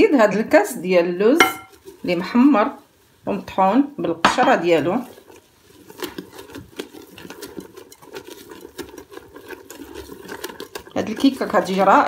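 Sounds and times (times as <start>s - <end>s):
utensil tapping against bowl: 1.4s - 1.8s
batter slapping: 4.1s - 12.0s.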